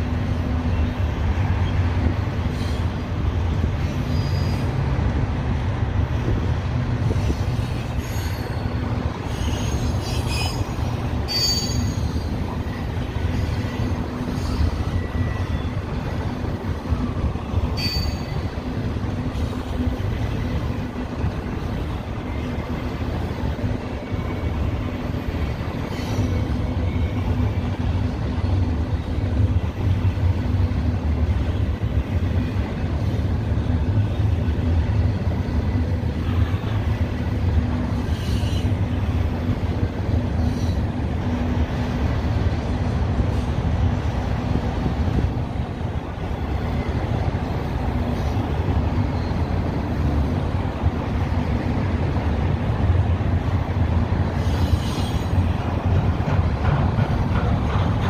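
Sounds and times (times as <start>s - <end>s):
train wheels rumbling on rail: 0.0s - 58.0s
high-pitched wheel squeals: 7.9s - 12.4s, 17.8s - 18.5s.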